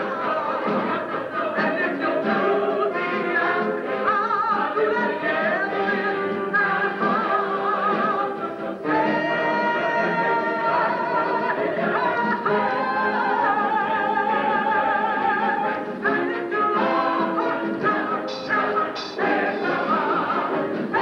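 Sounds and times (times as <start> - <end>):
show tune singing with orchestra: 0.0 - 21.0.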